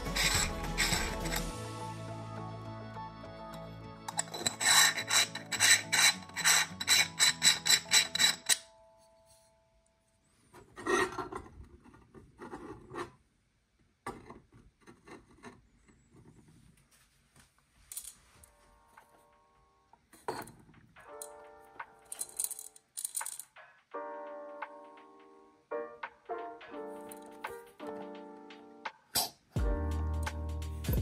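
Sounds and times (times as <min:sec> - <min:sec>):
metal threads rasping: 0:00.0 - 0:01.6, 0:04.1 - 0:08.6.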